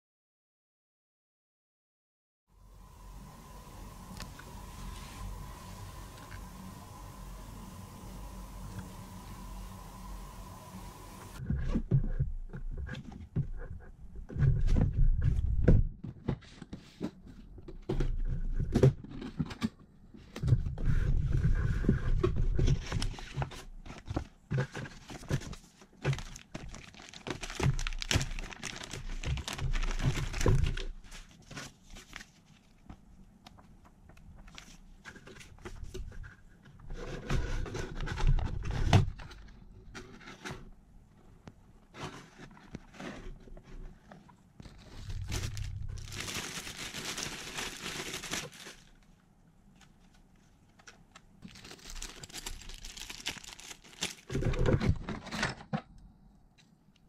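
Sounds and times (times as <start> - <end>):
plastic bag crinkling: 26.0 - 32.7, 44.6 - 49.2, 51.4 - 55.4.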